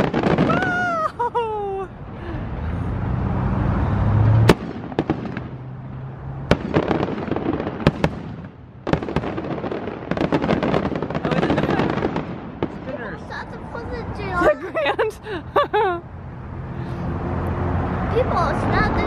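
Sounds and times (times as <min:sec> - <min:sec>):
fireworks booming: 0:00.0 - 0:01.5, 0:04.3 - 0:14.4
fireworks crackling: 0:00.0 - 0:01.5, 0:04.4 - 0:15.3.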